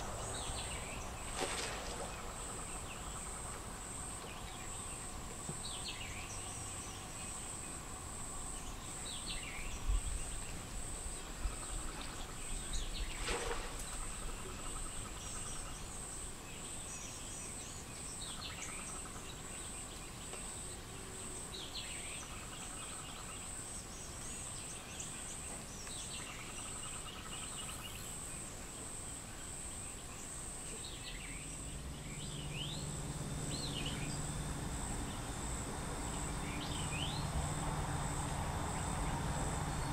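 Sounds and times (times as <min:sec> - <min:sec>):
low steady hum: 0:00.0 - 0:39.9
bird chirping: 0:29.8 - 0:39.9
high-pitched insect drone: 0:31.5 - 0:39.9.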